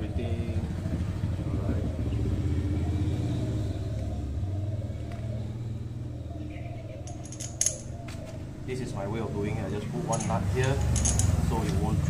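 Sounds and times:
vehicle engine rumbling: 0.0 - 12.0
light metallic clinks: 7.0 - 8.0, 10.0 - 11.8.

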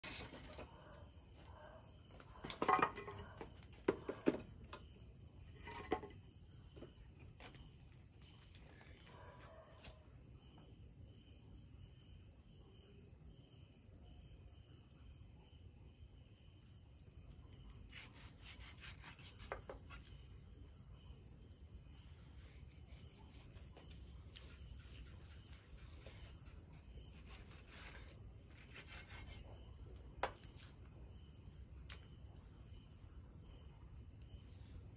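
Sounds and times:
crickets chirring: 0.0 - 34.9
objects knocking and clattering: 2.3 - 4.8, 5.5 - 6.3.

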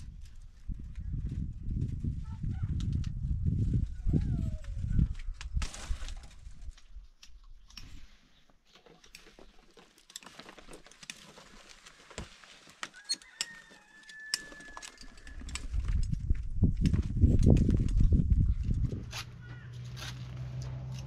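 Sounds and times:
wire mesh clicking and scraping: 12.7 - 21.0.

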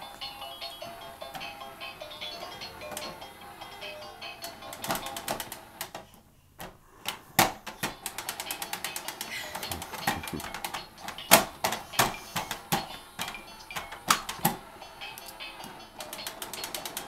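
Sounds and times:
hands knocking on plastic: 9.2 - 14.6.

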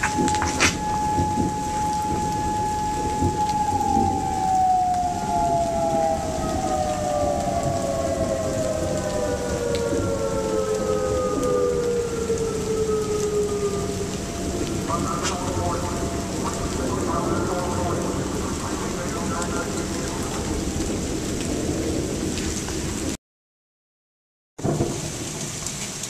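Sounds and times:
warning siren winding down: 0.0 - 22.2
rain hiss: 0.0 - 23.2, 24.6 - 26.0.

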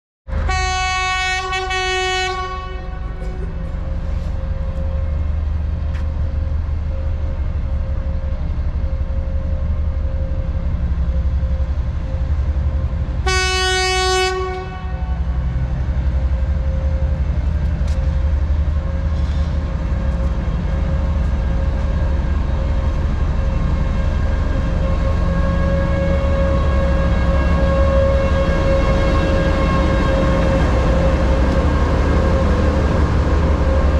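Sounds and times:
locomotive horn blast: 0.4 - 4.2, 13.2 - 15.4, 24.8 - 32.6
diesel engines droning: 2.0 - 33.9.

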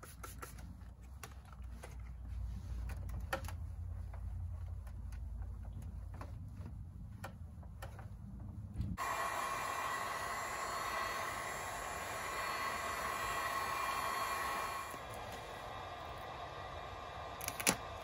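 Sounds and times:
heat gun blower whooshing: 8.9 - 18.0.

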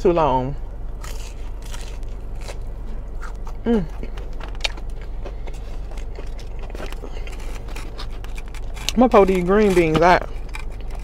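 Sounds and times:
steady low hum: 0.0 - 11.0
chewing fried fish: 0.9 - 11.0
person humming mm: 3.6 - 4.0.

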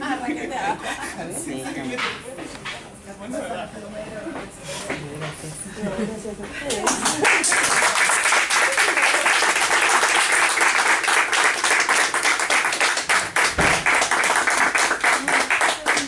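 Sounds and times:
people applauding: 6.7 - 16.0.

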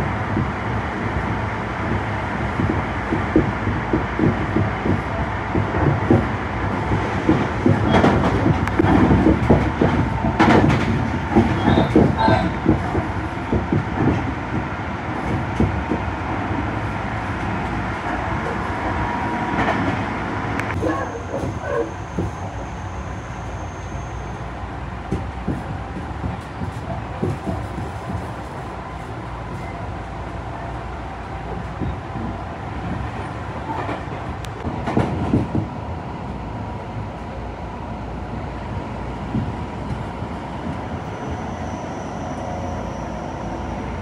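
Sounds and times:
train rumble: 0.0 - 44.0.

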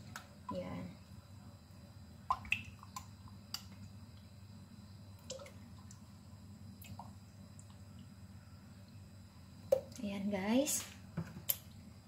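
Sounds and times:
yogurt plopping into pot: 2.2 - 4.3.

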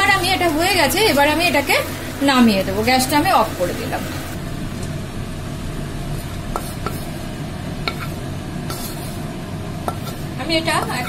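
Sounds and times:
spatula scraping a pan: 6.1 - 11.0.

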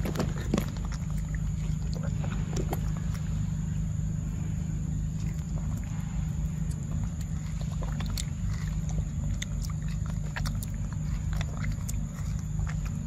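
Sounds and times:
monkey chewing with lip-smacks: 0.0 - 13.0
steady low rumble: 0.0 - 13.0.

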